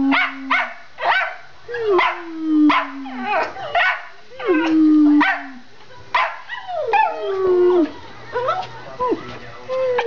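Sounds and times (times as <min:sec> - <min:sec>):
dogs howling: 0:06.5 - 0:08.6.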